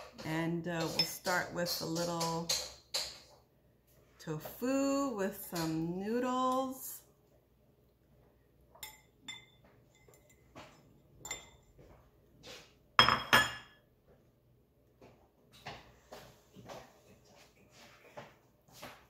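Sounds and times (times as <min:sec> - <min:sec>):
metal fork clinking ceramic bowl: 0:08.8 - 0:10.6, 0:11.2 - 0:11.7.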